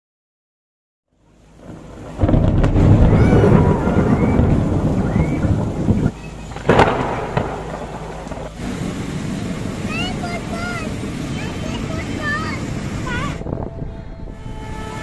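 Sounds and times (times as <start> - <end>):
rain: 1.1 - 15.0
thunder rumble: 1.2 - 15.0
sharp thunder crack: 1.5 - 12.0.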